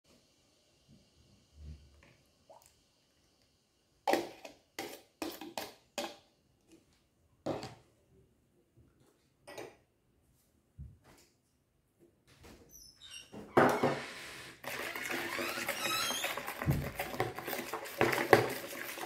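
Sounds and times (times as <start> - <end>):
metal spoon scraping plastic jug: 4.1 - 6.2, 14.6 - 19.0.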